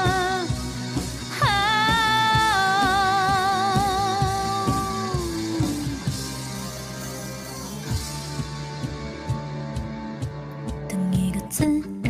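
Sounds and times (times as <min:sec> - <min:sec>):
woman singing with vibrato: 0:00.0 - 0:00.6, 0:01.3 - 0:06.1
pop backing track with drum beat: 0:00.0 - 0:12.0.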